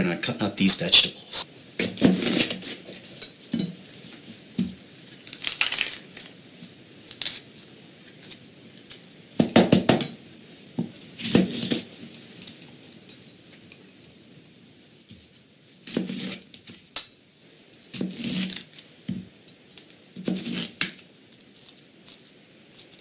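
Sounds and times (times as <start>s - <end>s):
paper crinkling: 5.2s - 6.4s
pepper crunching: 5.2s - 6.4s.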